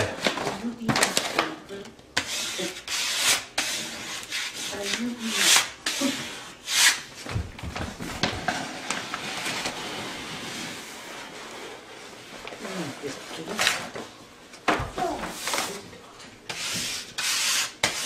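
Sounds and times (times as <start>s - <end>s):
paper backing rustling: 7.1s - 16.0s.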